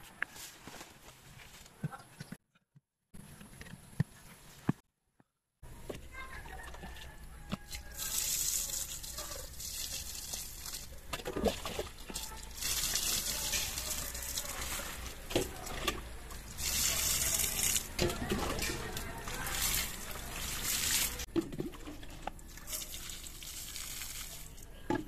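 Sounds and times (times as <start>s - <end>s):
water pouring onto soil: 7.7s - 15.8s, 16.4s - 24.7s.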